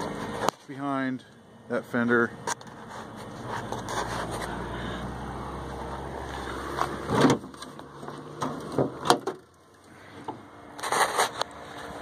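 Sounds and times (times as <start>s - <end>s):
sharp knocks and thumps: 6.8s - 9.5s.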